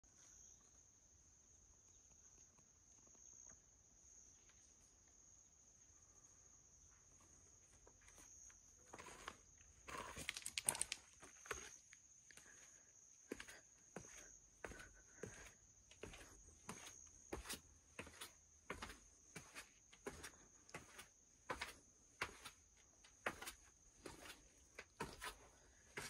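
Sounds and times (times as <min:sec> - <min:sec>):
footsteps on gravel and stone: 0:08.9 - 0:11.8, 0:23.3 - 0:25.4.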